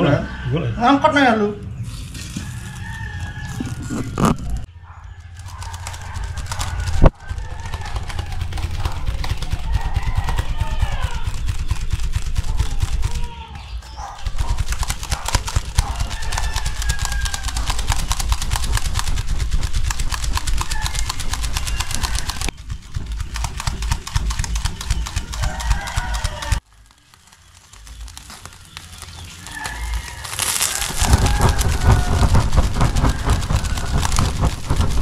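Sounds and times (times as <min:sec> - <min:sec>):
hand fan clattering: 0:03.9 - 0:13.3, 0:14.2 - 0:35.0
gusts buffeting microphone: 0:30.8 - 0:35.0.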